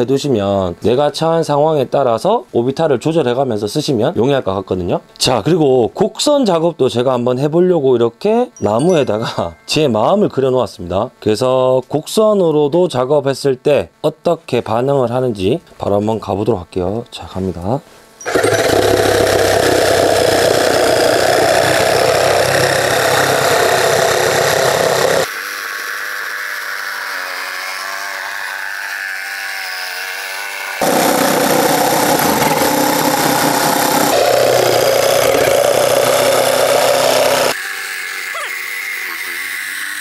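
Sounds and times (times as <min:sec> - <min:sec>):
jigsaw sawing wood: 0:18.2 - 0:40.0.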